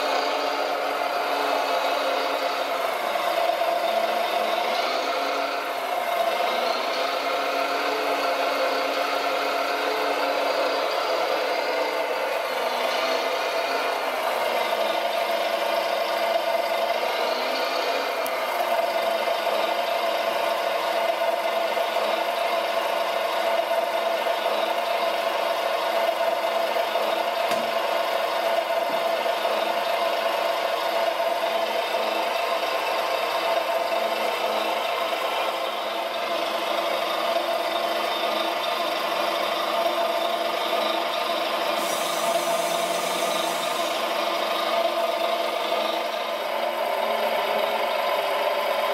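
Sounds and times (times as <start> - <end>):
motor whine: 41.8 - 46.1.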